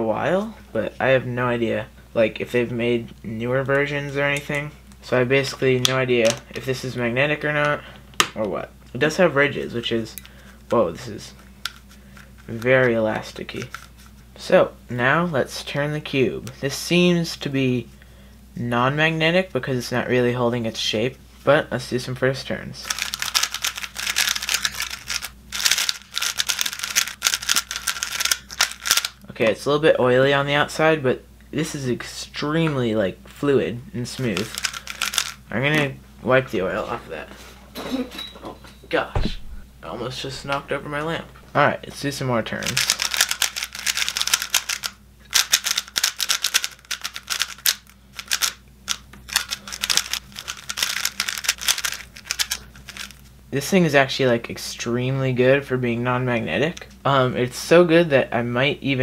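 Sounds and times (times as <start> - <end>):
plastic puzzle cube clicking: 22.9 - 29.1, 34.4 - 35.4, 42.8 - 53.1.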